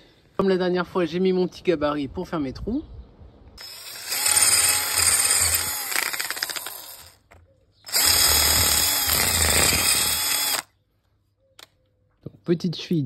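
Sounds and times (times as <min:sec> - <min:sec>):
cordless drill boring into masonry: 0:03.6 - 0:10.7.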